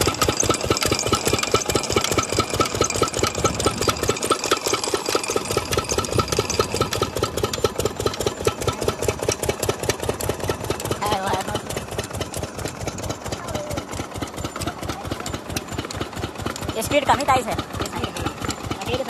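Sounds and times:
diesel engine chugging: 0.0s - 19.0s.

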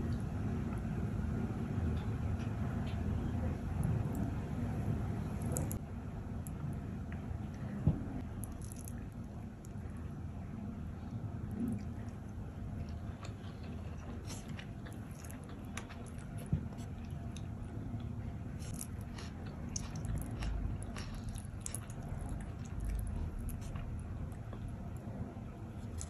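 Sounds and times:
steady low hum: 0.0s - 26.0s
wet clicks of eating rice: 12.8s - 24.7s.

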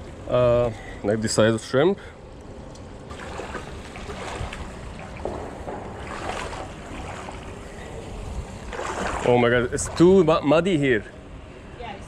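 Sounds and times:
water lapping: 3.0s - 10.8s
wind on microphone: 3.4s - 10.2s.

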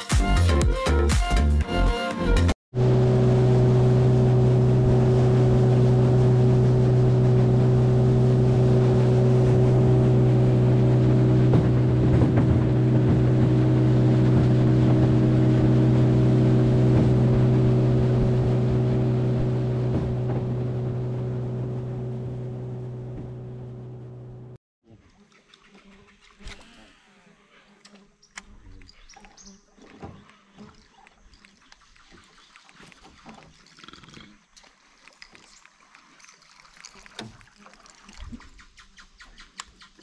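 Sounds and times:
outboard motor hum: 2.7s - 24.6s
water rushing: 2.8s - 23.8s
wind: 24.8s - 40.0s.

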